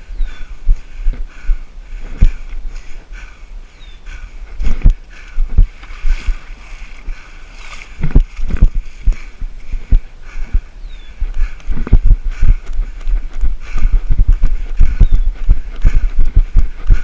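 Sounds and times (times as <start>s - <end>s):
running footsteps thudding: 4.5s - 6.6s, 7.7s - 17.0s.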